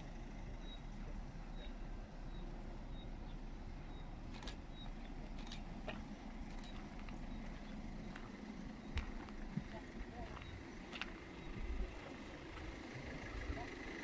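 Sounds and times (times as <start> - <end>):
low outdoor rumble: 0.0 - 14.0
faint high chirp: 0.5 - 11.8
sharp clicks: 4.3 - 7.2.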